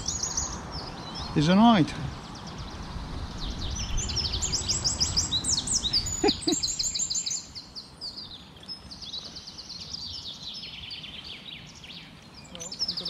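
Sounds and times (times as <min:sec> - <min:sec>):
songbirds chirping and trilling: 0:00.0 - 0:13.0.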